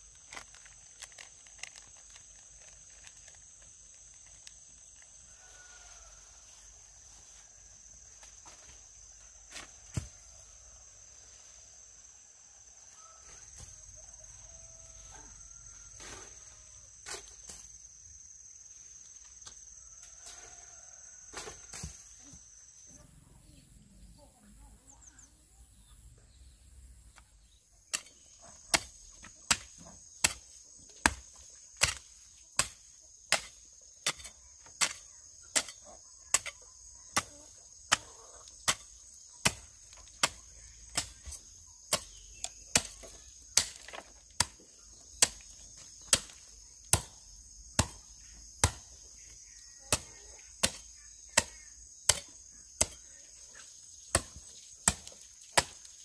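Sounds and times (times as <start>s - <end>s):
insects shrilling: 0.0s - 23.0s, 27.8s - 56.0s
hoe chopping into soil: 27.9s - 49.0s, 54.0s - 56.0s.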